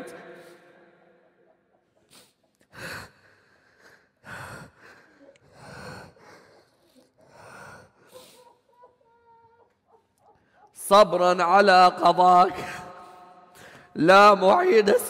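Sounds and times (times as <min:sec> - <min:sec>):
man sobbing and sniffing: 0:03.9 - 0:09.1.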